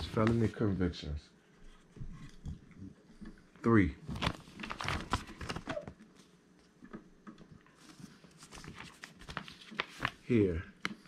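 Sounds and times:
paper rustling: 0.0 - 0.7, 4.0 - 6.3, 7.6 - 11.0.

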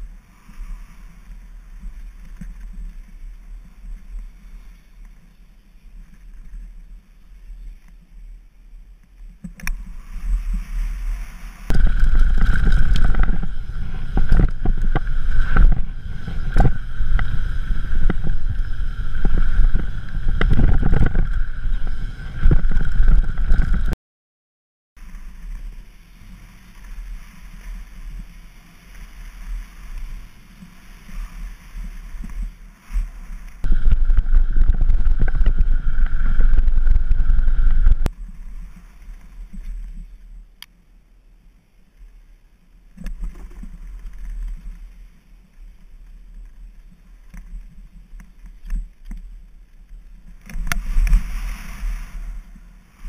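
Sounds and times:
bike knocking and rattling: 11.7 - 23.9
steady high whir: 11.7 - 24.0, 33.7 - 38.1
tyres rumbling on dirt and rock: 11.7 - 24.0, 33.7 - 38.1
wind buffeting microphone: 11.7 - 24.0, 33.6 - 38.1.

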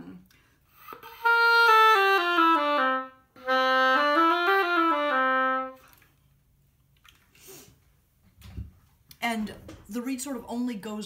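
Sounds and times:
oboe playing: 0.7 - 6.0.

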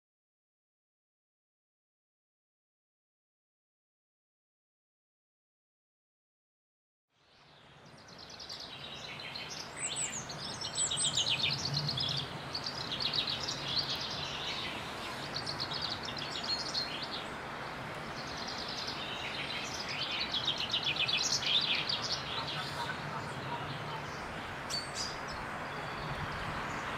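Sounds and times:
songbirds trilling: 7.4 - 26.9.

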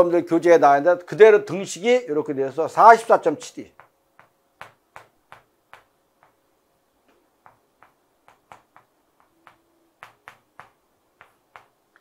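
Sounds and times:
chalk tapping on blackboard: 3.6 - 6.5, 7.1 - 12.0.

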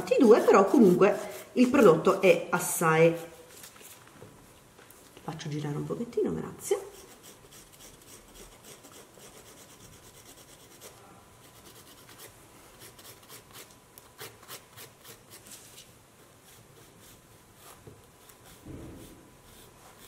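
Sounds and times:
nail file rasping: 6.9 - 10.9, 11.5 - 15.4.

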